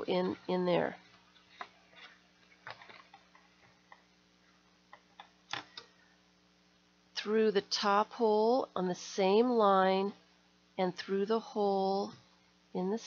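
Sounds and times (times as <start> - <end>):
paper rustling: 1.0 - 3.8.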